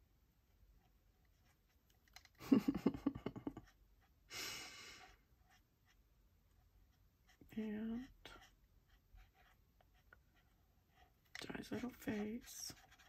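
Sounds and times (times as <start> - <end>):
pen rubbing on paper: 7.3 - 13.0.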